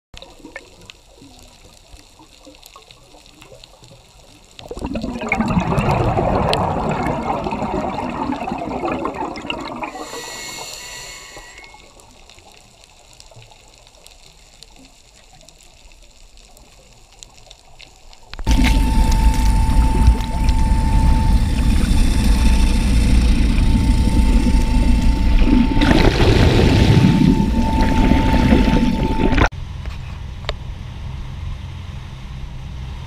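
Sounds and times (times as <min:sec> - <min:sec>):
faint crackling background: 0:00.2 - 0:30.6
diver exhaling bubbles underwater: 0:04.6 - 0:11.9, 0:18.4 - 0:29.5
regulator hiss on inhale: 0:09.9 - 0:12.0.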